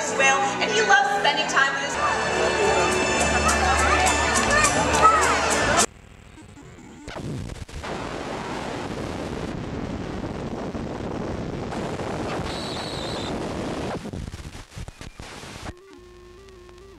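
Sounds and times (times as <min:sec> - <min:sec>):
rushing rumbling noise: 0:05.8 - 0:14.4
brief high whistle-like tone: 0:12.4 - 0:13.3.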